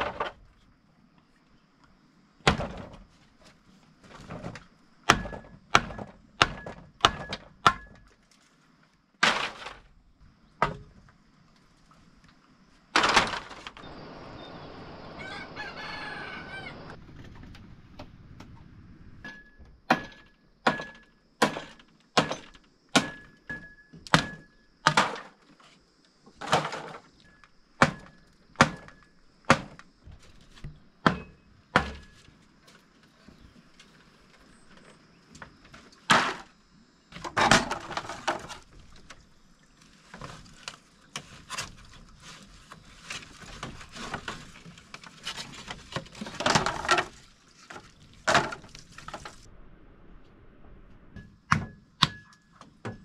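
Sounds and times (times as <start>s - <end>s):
rooster crowing: 15.0s - 17.0s.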